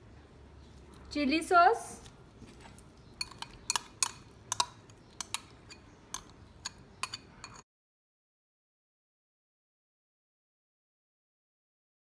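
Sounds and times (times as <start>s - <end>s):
metal spoon clinking on glass bowls: 3.2s - 7.6s.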